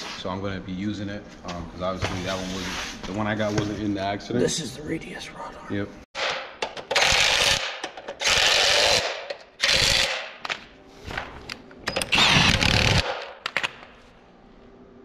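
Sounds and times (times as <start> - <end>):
pneumatic air tool bursts: 12.0 - 13.0.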